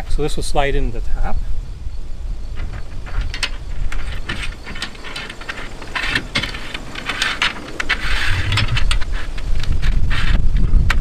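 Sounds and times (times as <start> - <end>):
metal scraping on metal: 2.5 - 10.4
metal clicking: 2.6 - 10.0.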